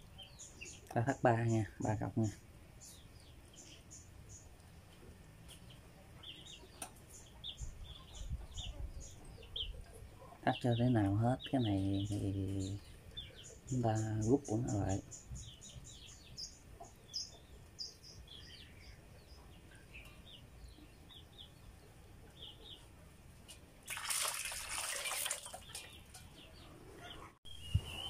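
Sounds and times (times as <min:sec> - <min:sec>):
water splashing in steel basin: 0:23.8 - 0:26.0
high bird chirps: 0:25.6 - 0:28.0.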